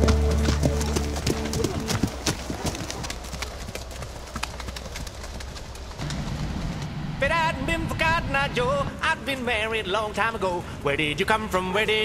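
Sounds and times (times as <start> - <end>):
background music: 0.0 - 2.2
horse hooves clip-clopping on dirt: 0.0 - 6.9.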